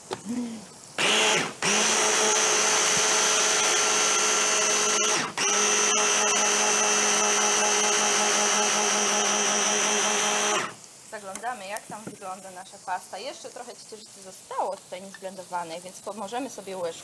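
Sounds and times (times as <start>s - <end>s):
electric blender running: 1.0s - 10.8s.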